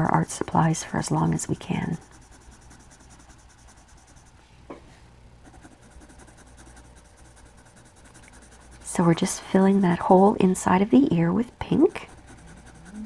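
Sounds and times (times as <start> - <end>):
pencil rubbing on paper: 0.0 - 4.4, 5.4 - 10.2, 11.8 - 13.0.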